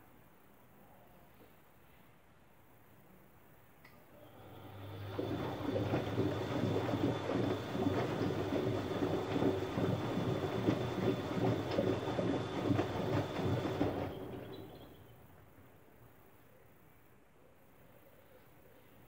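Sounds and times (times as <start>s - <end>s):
washing machine motor hum: 4.1s - 16.0s
wet laundry tumbling and sloshing: 4.5s - 15.4s.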